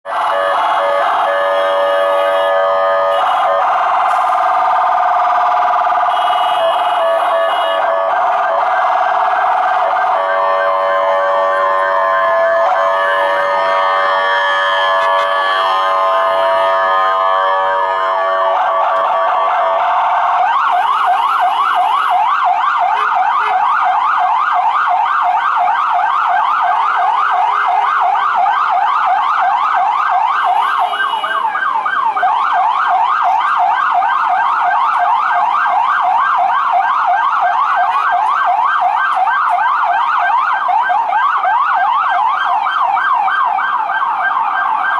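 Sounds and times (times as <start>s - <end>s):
siren yelping: 0.1s - 44.9s.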